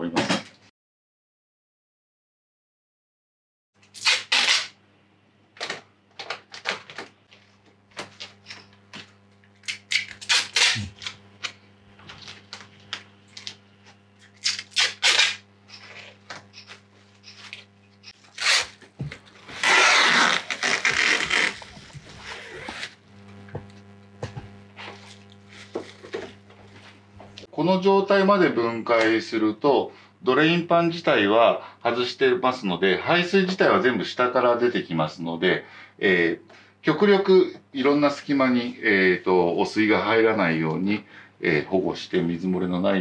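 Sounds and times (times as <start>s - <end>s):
plastic film and tape crinkling: 12.0s - 15.4s.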